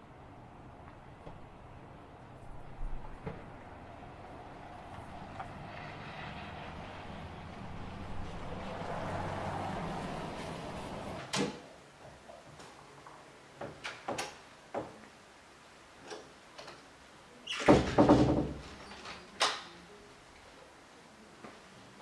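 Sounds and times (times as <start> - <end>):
door clattering knocks: 17.6 - 18.8.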